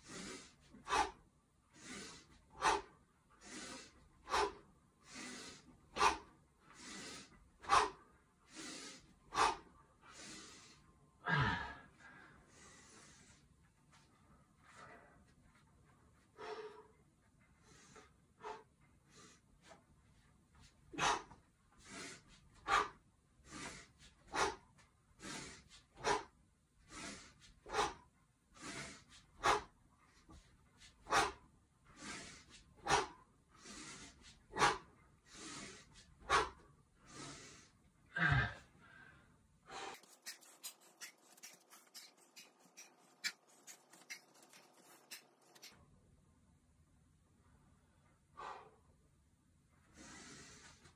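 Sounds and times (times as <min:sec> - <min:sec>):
sharp rhythmic exhales: 0:00.0 - 0:15.4, 0:16.2 - 0:45.8, 0:48.3 - 0:49.0, 0:49.8 - 0:50.9.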